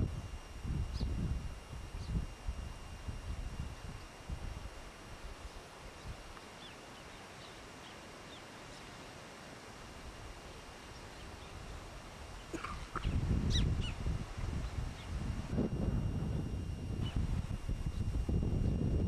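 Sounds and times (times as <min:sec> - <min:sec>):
wind buffeting microphone: 0:00.0 - 0:06.3, 0:11.2 - 0:19.0
birds chirping: 0:00.2 - 0:02.4, 0:04.9 - 0:09.2, 0:10.2 - 0:15.4.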